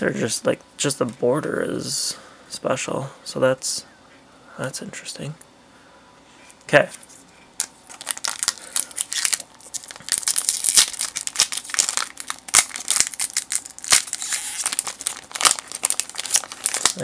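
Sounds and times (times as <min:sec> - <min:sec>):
foil wrapper tearing and crinkling: 0:07.9 - 0:17.0.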